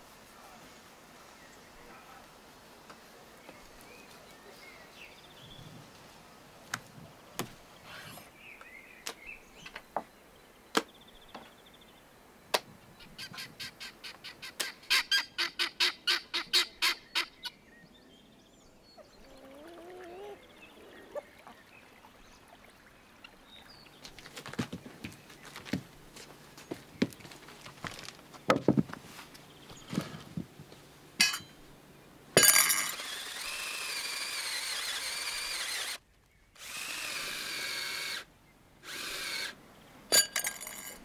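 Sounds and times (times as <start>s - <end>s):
bird gliding call: 19.0s - 23.4s.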